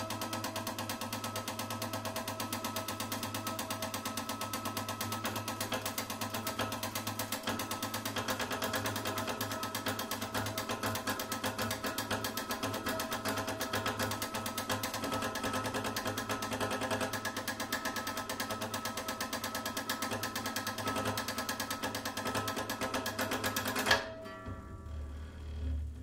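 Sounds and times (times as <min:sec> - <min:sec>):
guitar strings rattling buzz: 0:23.2 - 0:26.0
guitar strings ringing: 0:23.9 - 0:25.4.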